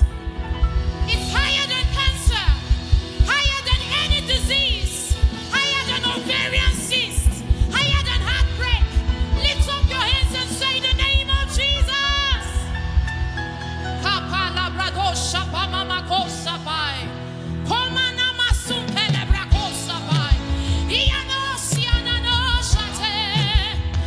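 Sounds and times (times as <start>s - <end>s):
live band bass and drums: 0.0s - 14.2s, 17.7s - 24.0s
woman singing gospel: 1.1s - 12.7s, 17.7s - 24.0s.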